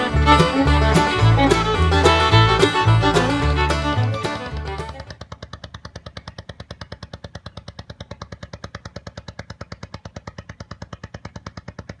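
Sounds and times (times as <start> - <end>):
boat engine running: 0.0 - 12.0.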